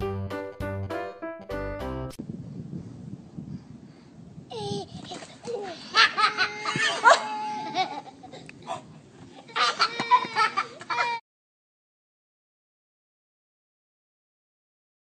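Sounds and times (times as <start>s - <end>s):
high-pitched laughter: 5.6s - 8.5s, 9.4s - 11.2s.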